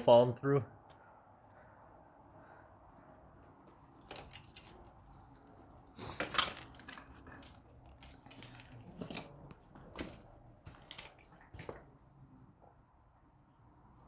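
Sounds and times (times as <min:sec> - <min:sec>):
footsteps crunching over debris: 0:06.1 - 0:11.9.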